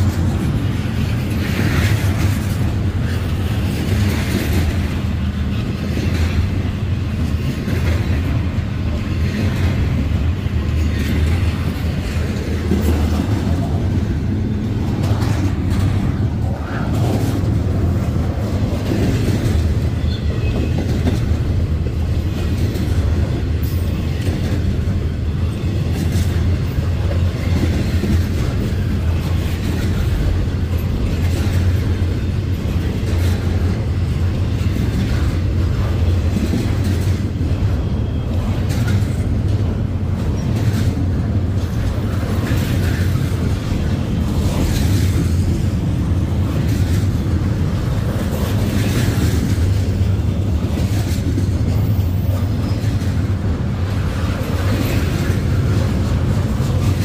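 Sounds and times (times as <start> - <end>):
freight train rumbling past: 0.0 - 57.0
rail car clicks and clanks: 0.0 - 57.0.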